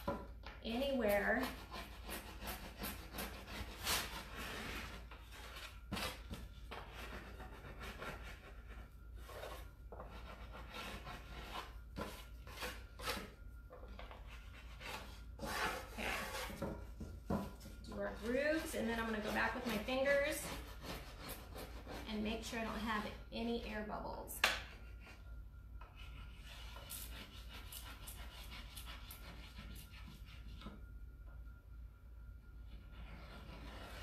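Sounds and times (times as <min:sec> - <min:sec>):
tool scraping over grooved wood: 0:01.0 - 0:16.8.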